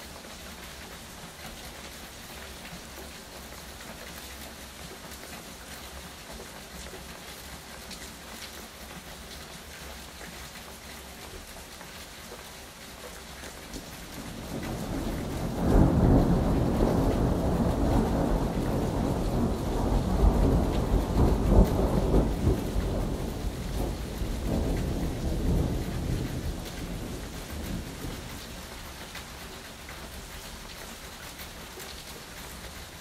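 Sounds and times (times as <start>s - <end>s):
steady rain falling: 0.0s - 33.0s
thunder rumbling: 14.2s - 28.5s.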